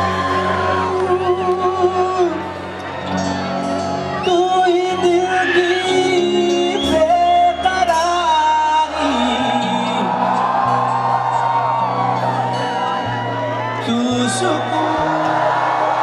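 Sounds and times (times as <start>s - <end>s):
man singing: 0.0s - 2.7s, 4.1s - 10.7s, 13.7s - 16.0s
rock band playing: 0.0s - 16.0s.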